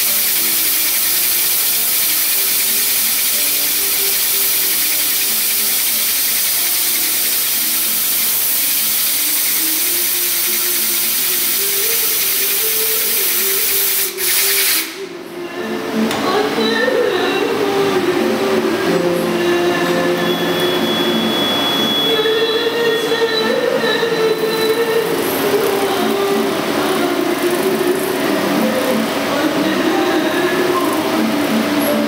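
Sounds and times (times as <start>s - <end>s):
lathe spindle turning: 0.0s - 14.9s, 23.9s - 31.7s
compressed air hissing: 0.0s - 15.1s.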